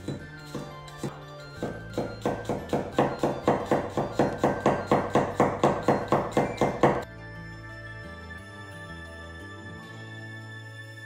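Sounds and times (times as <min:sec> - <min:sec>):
cleaver chopping on wooden board: 0:00.0 - 0:07.0.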